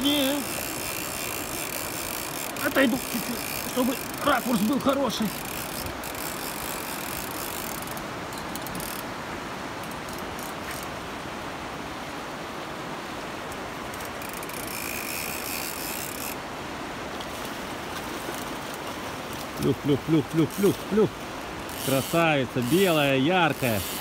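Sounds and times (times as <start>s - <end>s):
light mechanical ticking: 0.0s - 9.0s
river current rushing: 0.0s - 24.0s.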